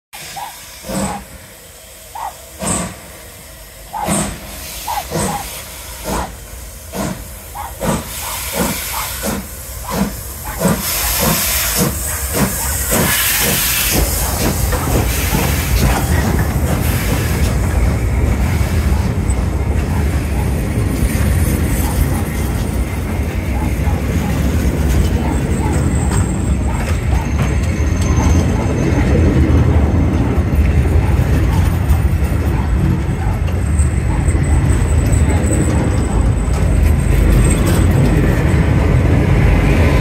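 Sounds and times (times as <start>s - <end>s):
train rumbling on rails: 0.1s - 40.0s
steam hissing: 0.2s - 27.4s
steam locomotive chuffing: 0.2s - 40.0s.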